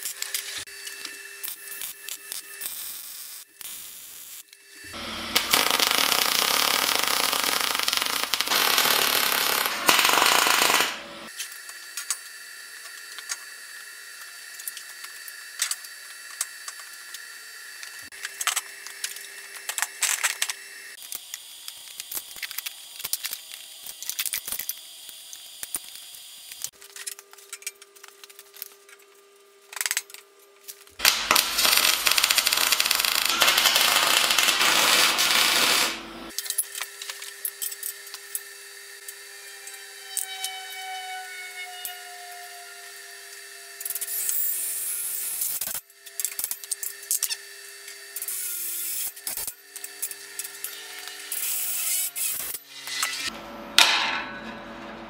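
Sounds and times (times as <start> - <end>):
welder arc crackling: 1.4 - 11.3, 31.0 - 36.4.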